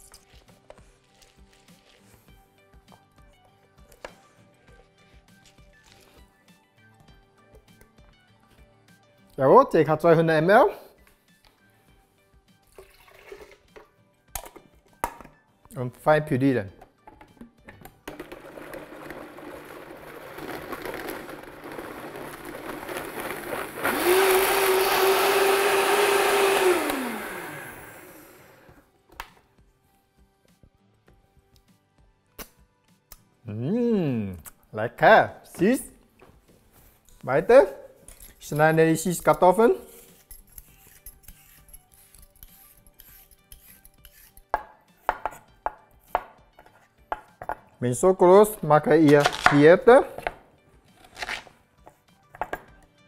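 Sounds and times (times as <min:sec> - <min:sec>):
blender running: 0:18.1 - 0:28.8
vegetable peeler scraping: 0:38.6 - 0:44.5, 0:50.9 - 0:51.5
knife chopping on wooden board: 0:44.6 - 0:47.7.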